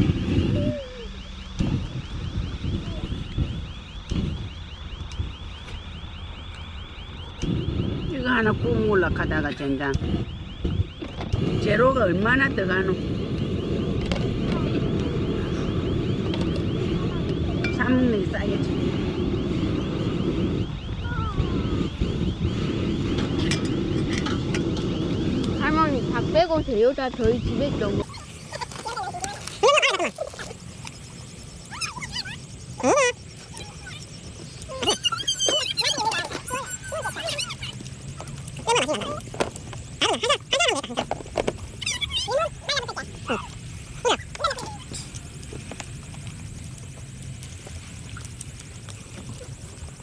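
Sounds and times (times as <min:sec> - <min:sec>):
wind rumble on microphone: 0:00.0 - 0:50.0
high repeating chirp: 0:11.6 - 0:39.2
short falling whistle: 0:30.4 - 0:37.7.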